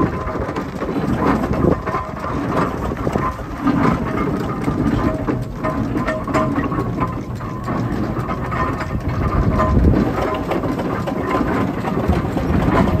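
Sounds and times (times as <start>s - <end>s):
steam engine running: 0.0s - 13.0s.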